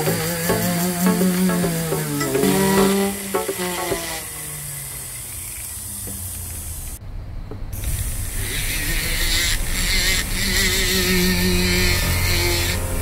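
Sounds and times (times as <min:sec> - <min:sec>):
sanding drum grinding metal: 0:00.0 - 0:05.2, 0:09.6 - 0:13.0
rotary tool motor hum: 0:00.0 - 0:07.0, 0:08.2 - 0:13.0.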